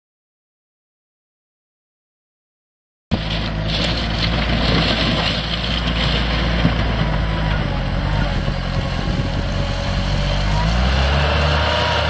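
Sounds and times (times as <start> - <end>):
diesel engine running: 3.1 - 12.0.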